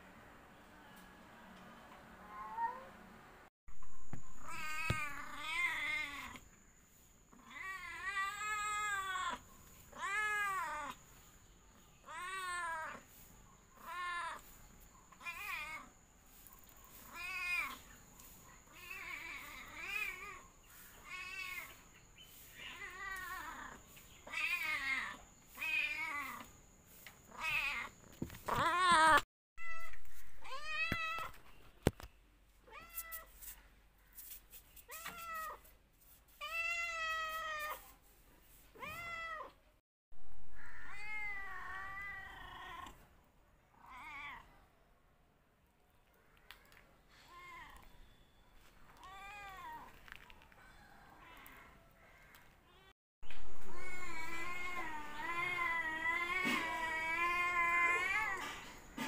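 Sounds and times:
cat meowing: 40.6s - 43.0s, 43.8s - 44.5s, 53.6s - 58.4s.

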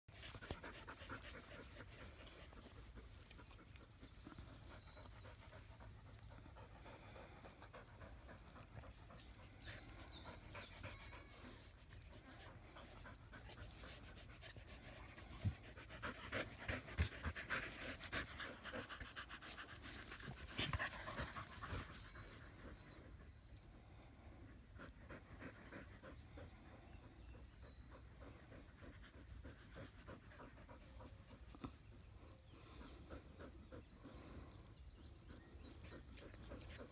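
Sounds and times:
dog panting: 0.1s - 23.2s, 24.2s - 36.9s.

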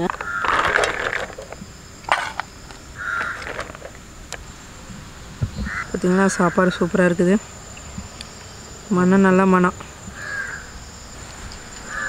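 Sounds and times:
high insect drone: 0.0s - 12.0s
crow cawing: 0.2s - 0.6s, 3.0s - 3.7s, 5.7s - 6.5s, 10.2s - 10.7s.

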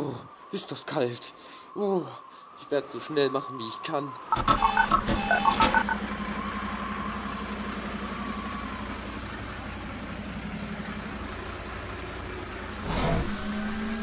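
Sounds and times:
truck engine idling: 4.6s - 12.8s.

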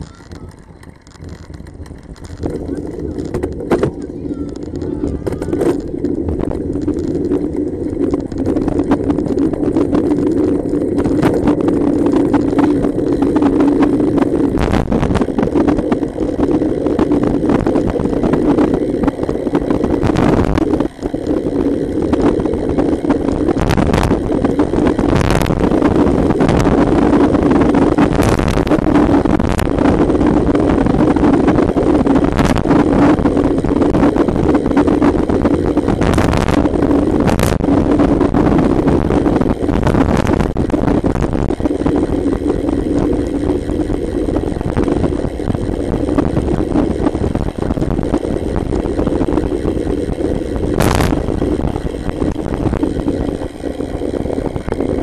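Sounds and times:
bicycle knocks and rattles: 0.0s - 30.4s
road rumble: 0.0s - 55.0s
wind rushing over microphone: 0.0s - 55.0s.

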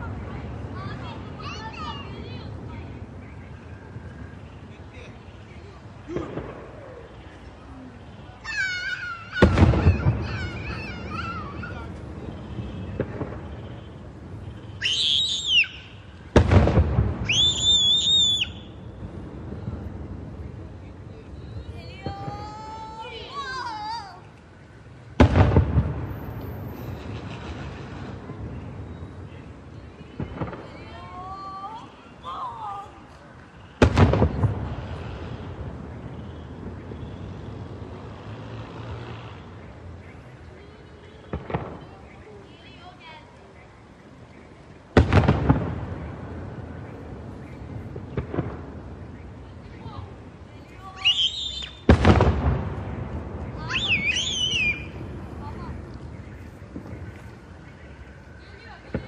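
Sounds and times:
high wavering whistle: 14.8s - 16.0s, 17.3s - 18.8s, 50.9s - 51.8s, 53.6s - 55.0s.

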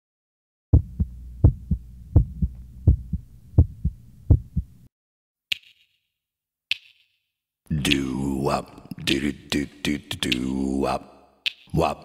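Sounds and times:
heartbeat thumps: 0.7s - 4.8s
low hum: 0.8s - 4.9s.

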